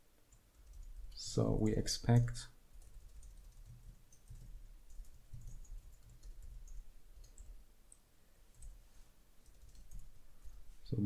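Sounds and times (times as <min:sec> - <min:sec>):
computer keyboard keys clicking: 0:00.3 - 0:01.2, 0:02.1 - 0:07.6, 0:09.4 - 0:10.1.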